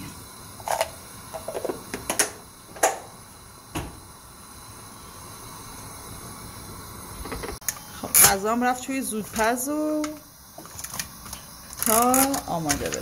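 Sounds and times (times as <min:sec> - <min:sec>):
kitchen things knocking and clinking: 0:00.7 - 0:03.0.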